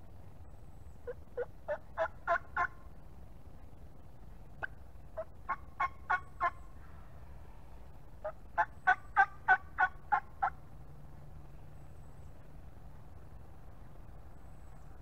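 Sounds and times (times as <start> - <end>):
turkey yelping: 1.0 - 2.8, 4.6 - 7.0, 8.2 - 10.6.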